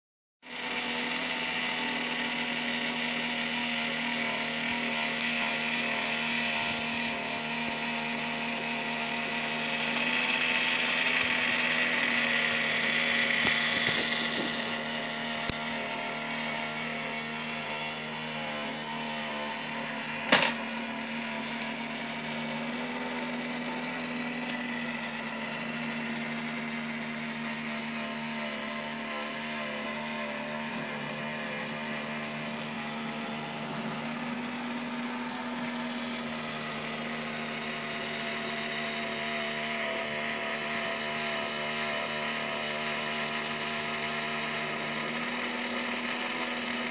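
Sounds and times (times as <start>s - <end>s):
small toy motor whirring: 0.4s - 46.9s
plastic toy clicks and knocks: 20.3s - 20.6s.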